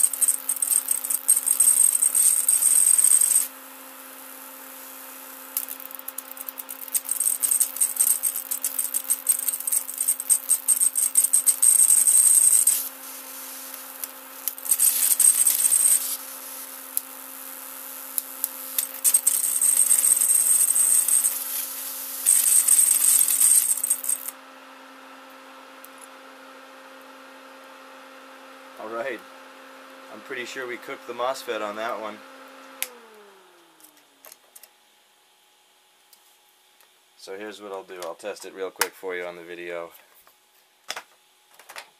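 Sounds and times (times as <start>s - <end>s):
high-voltage arc crackling: 0.0s - 3.6s, 4.2s - 24.3s.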